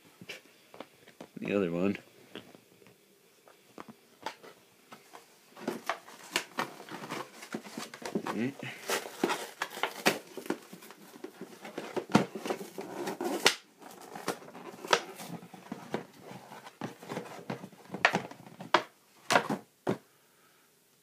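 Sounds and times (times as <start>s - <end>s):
packaging rustling: 4.2s - 20.0s.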